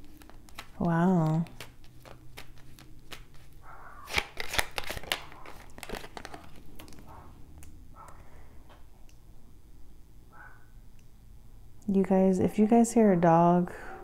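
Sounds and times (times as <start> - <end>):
cards clicking and slapping on stone: 0.0 - 7.0
cards tapping and rustling: 0.0 - 7.1.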